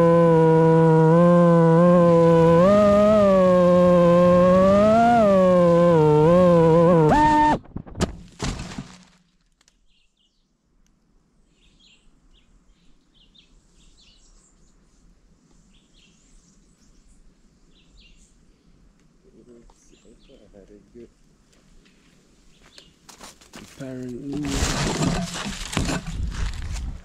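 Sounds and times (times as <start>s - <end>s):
drone motors whining: 0.0s - 7.6s.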